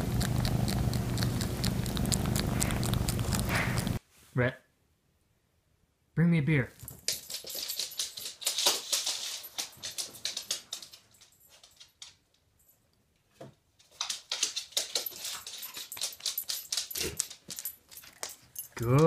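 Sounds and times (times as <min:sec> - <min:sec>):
dog claws clicking on hardwood floor: 0:06.8 - 0:12.2, 0:13.4 - 0:19.0.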